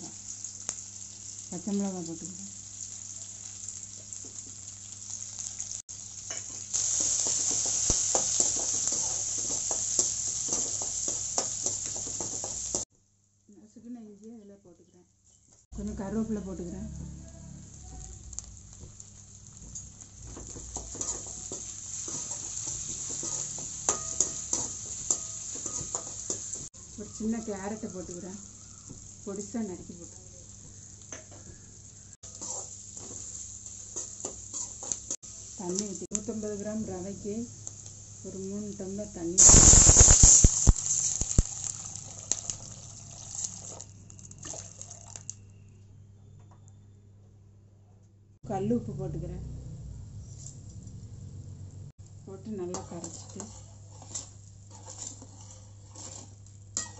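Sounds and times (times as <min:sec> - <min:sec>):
food sizzling in hot oil: 0:00.0 - 0:12.9, 0:15.2 - 0:45.8, 0:52.0 - 0:56.9
spatula stirring and scraping: 0:06.3 - 0:12.9, 0:20.2 - 0:26.8, 0:32.2 - 0:35.2, 0:52.6 - 0:56.9
sharp pops: 0:39.4 - 0:41.6
water pouring: 0:40.4 - 0:45.4.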